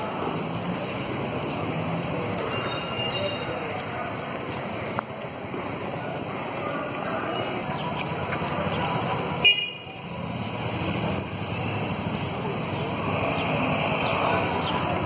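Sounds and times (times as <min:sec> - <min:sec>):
street traffic: 0:00.0 - 0:15.0
vehicle horn toot: 0:09.4 - 0:09.9.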